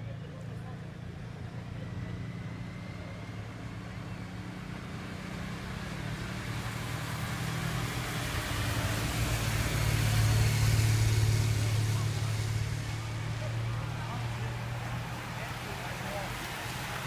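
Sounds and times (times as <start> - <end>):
vehicle engine hum: 0.0 - 17.0
tyre hiss on wet road: 5.3 - 17.0.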